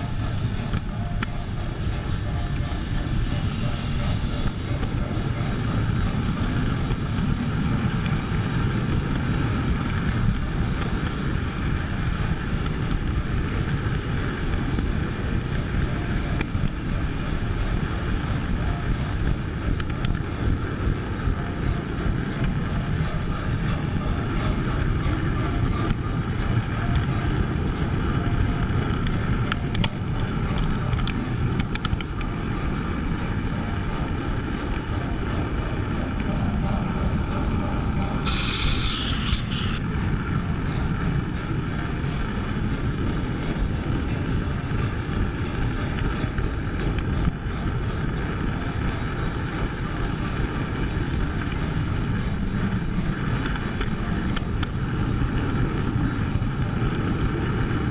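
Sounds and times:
model train wheels rumbling: 38.2 - 39.8.

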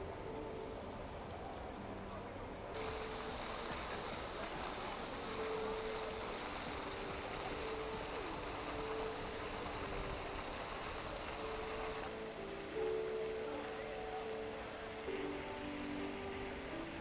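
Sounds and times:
fountain jets splashing on stone: 2.7 - 17.0.

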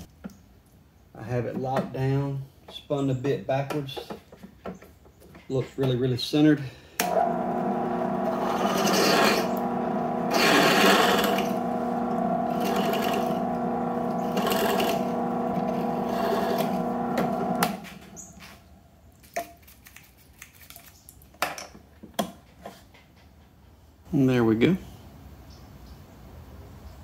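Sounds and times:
drill press motor hum: 7.0 - 18.7
drill bit cutting metal: 7.1 - 18.5.

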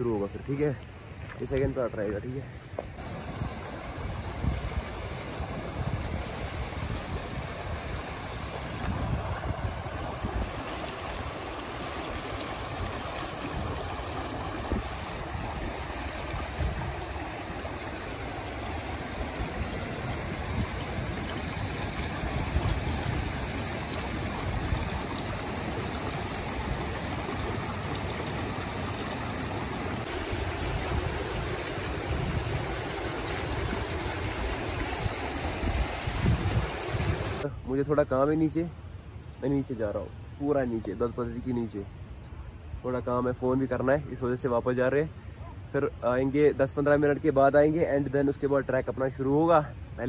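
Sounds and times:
stream running over rocks: 0.0 - 37.5.

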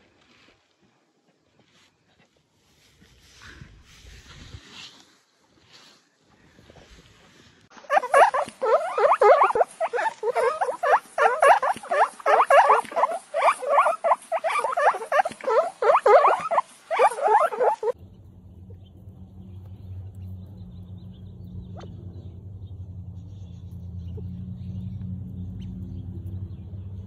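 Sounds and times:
guinea pigs chewing: 7.9 - 18.0
low steady hum: 18.0 - 27.0.

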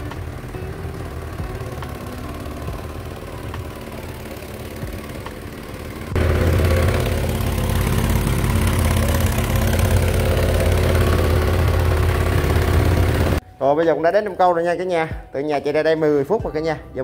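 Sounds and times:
small boat motor running: 0.0 - 13.4.

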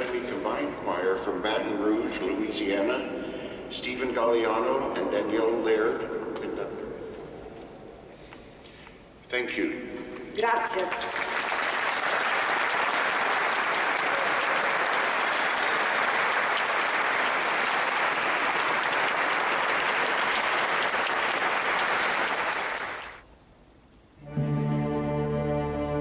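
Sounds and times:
audience applause: 10.8 - 23.2
music with sustained notes: 24.2 - 26.0.

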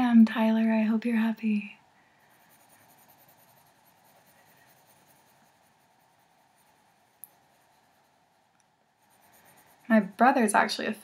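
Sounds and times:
pencil scratching on paper: 2.2 - 8.4, 9.0 - 10.7.

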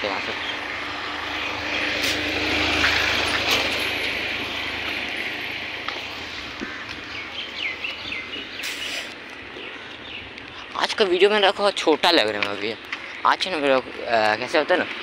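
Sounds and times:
birds chirping: 0.0 - 15.0
road traffic hiss: 0.0 - 15.0.

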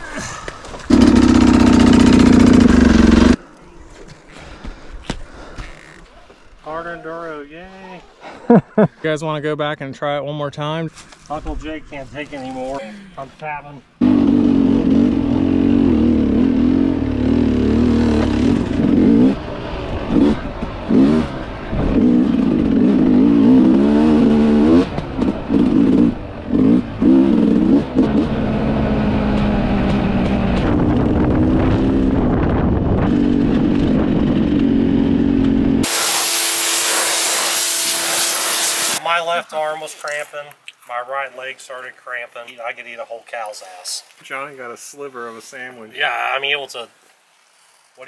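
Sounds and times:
dirt bike engine revving: 0.9 - 3.4, 14.0 - 39.0
loud steady hiss: 35.8 - 39.0.

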